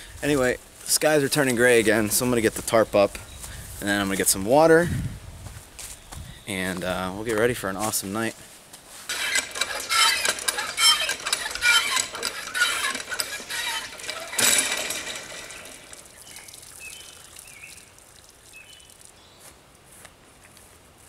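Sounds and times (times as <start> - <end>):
ratchet-like clicking: 9.1 - 16.6.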